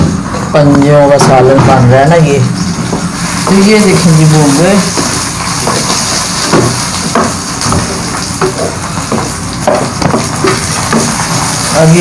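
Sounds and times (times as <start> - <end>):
food sizzling in a wok: 2.5 - 12.0.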